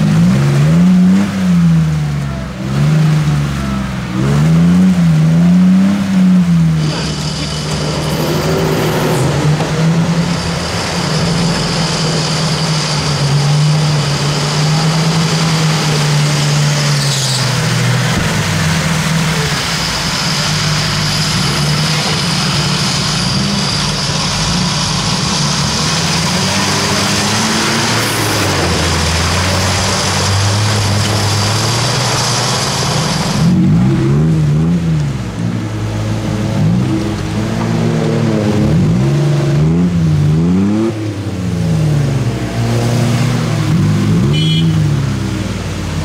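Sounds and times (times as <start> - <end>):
churned water and mud rushing: 0.0 - 46.0
engines running under load: 0.0 - 46.0
small engine revving: 2.7 - 18.3, 19.0 - 34.4.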